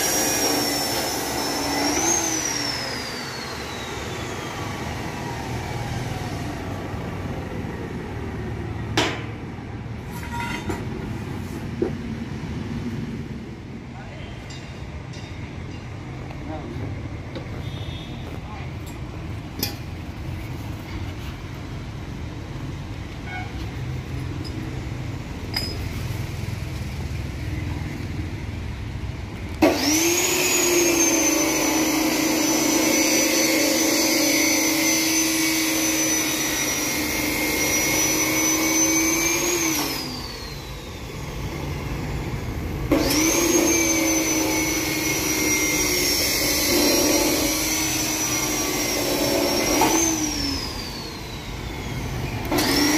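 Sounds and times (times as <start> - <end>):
angle grinder whine: 0.0 - 7.1, 29.6 - 52.9.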